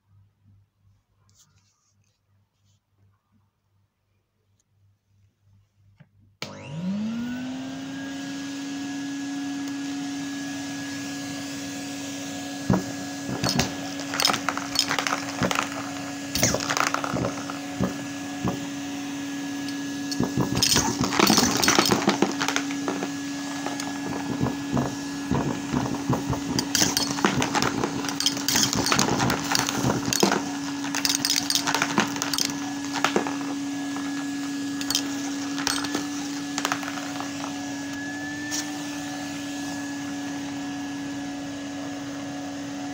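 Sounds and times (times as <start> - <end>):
vacuum cleaner motor running: 6.4 - 42.9
objects rattling through hose: 12.7 - 18.8, 19.5 - 37.7.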